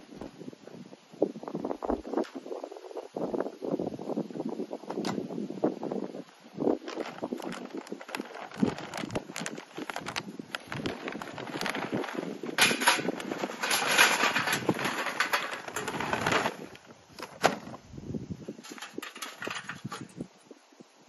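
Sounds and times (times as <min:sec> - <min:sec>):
paper bag rustling: 0:06.6 - 0:17.8, 0:18.5 - 0:20.0
charcoal rattling into metal chimney: 0:06.7 - 0:17.8, 0:18.5 - 0:20.2.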